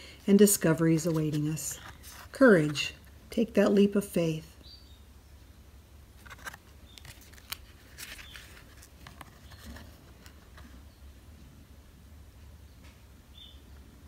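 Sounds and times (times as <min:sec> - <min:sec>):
low steady hum: 0:00.0 - 0:14.0
cards clicking and sliding: 0:06.2 - 0:10.6.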